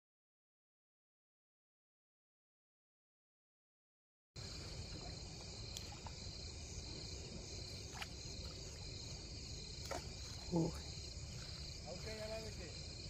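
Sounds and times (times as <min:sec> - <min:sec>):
crickets chirring: 0:04.4 - 0:13.0.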